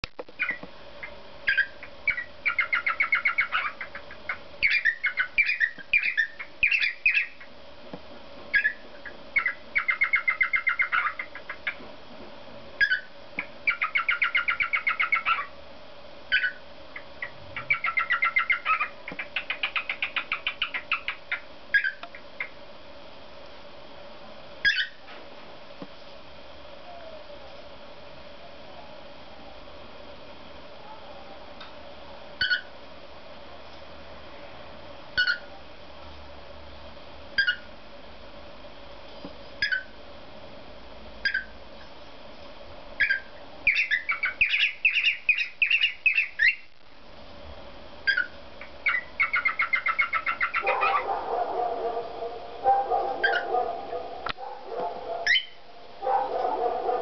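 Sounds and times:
faint steady hum: 0.0s - 57.0s
cockatiel rapid chirping: 0.4s - 7.5s, 8.5s - 11.8s, 12.8s - 15.5s, 16.3s - 22.6s, 24.6s - 25.0s, 32.4s - 32.7s, 35.2s - 35.5s, 37.4s - 37.7s, 39.6s - 40.0s, 41.2s - 41.5s, 43.0s - 46.7s, 48.1s - 51.1s, 53.2s - 53.5s, 55.2s - 55.6s
cockatiel whistled calls: 4.6s - 7.4s, 12.8s - 13.1s, 16.3s - 16.6s, 17.6s - 22.0s, 24.6s - 25.0s, 32.4s - 32.7s, 35.2s - 35.5s, 37.4s - 37.7s, 39.6s - 39.9s, 41.2s - 41.5s, 43.0s - 46.6s, 48.1s - 51.0s, 53.2s - 53.5s, 55.2s - 55.6s.

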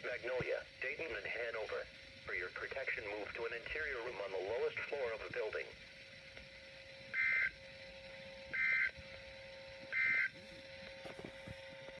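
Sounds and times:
faint steady tone: 0.0s - 12.0s
two-tone data bursts: 6.9s - 9.0s, 9.6s - 10.4s.

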